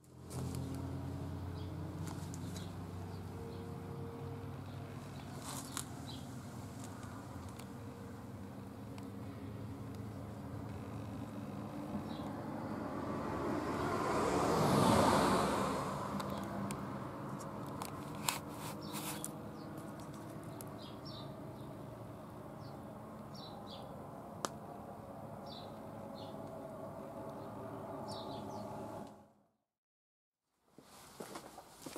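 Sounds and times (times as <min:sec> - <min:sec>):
vehicle passing: 0:00.0 - 0:29.4
small birds chirping: 0:01.5 - 0:03.8, 0:04.6 - 0:12.8, 0:18.0 - 0:24.0, 0:25.4 - 0:26.4.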